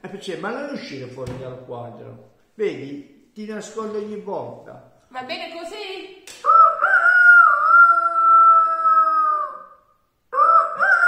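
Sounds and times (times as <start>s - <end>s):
man imitating rooster crow: 6.4s - 11.0s.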